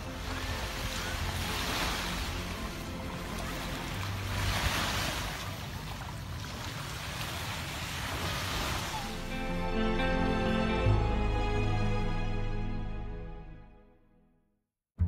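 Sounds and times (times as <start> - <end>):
water splashing: 0.0 - 9.4.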